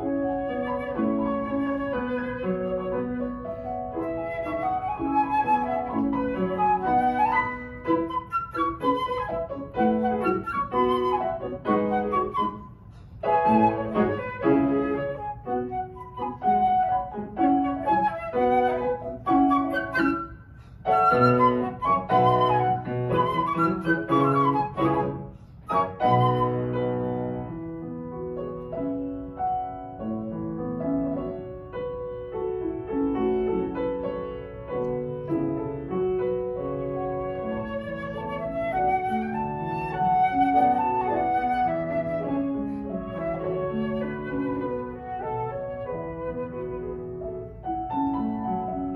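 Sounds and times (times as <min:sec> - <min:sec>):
flute playing: 0:00.0 - 0:27.4, 0:36.8 - 0:47.4
piano playing: 0:00.0 - 0:48.9.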